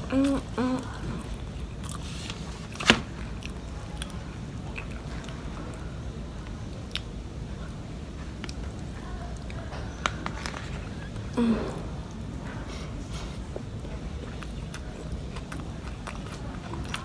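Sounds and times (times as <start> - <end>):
person chewing food: 0.0 - 7.2, 12.9 - 17.0.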